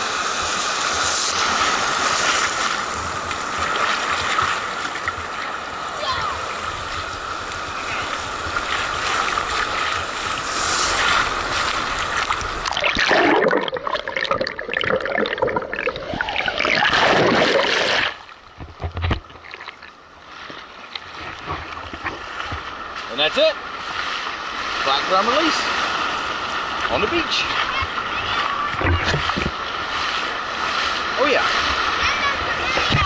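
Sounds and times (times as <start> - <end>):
surf washing and splashing: 0.0 - 33.0
underwater gurgling and bubbling: 11.3 - 19.9.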